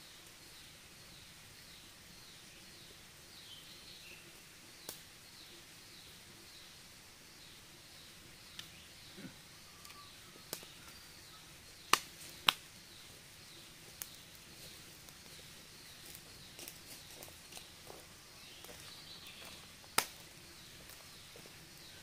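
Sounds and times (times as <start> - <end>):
wood fire crackling: 0.0 - 22.0
sharp pops of fire: 4.8 - 5.1, 9.9 - 11.0, 11.8 - 12.7, 13.9 - 15.4, 19.8 - 21.0.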